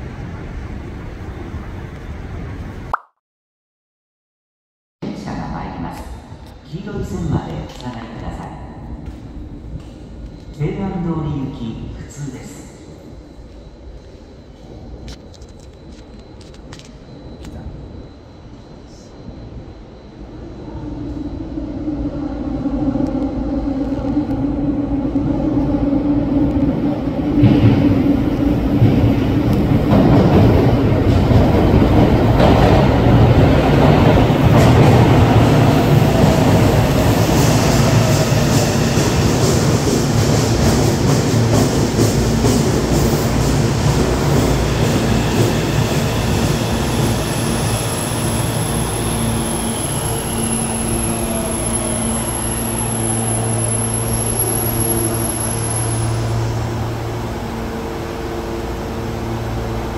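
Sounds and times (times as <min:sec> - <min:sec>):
electric train running: 0:22.7 - 0:59.9
train whine falling in pitch: 0:32.0 - 0:59.9.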